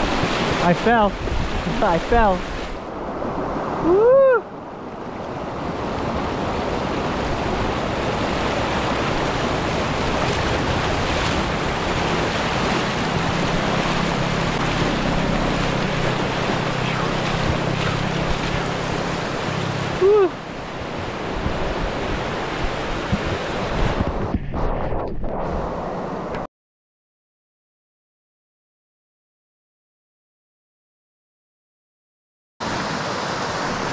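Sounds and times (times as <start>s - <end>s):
creek water flowing: 0.0s - 23.8s, 32.6s - 33.9s
wind on microphone: 0.0s - 26.5s
person whooping: 3.8s - 4.5s, 20.0s - 20.4s.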